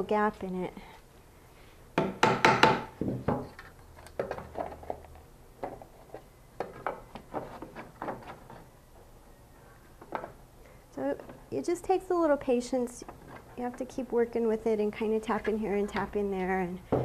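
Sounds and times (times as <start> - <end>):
knocks on wooden frame: 2.0 - 3.5.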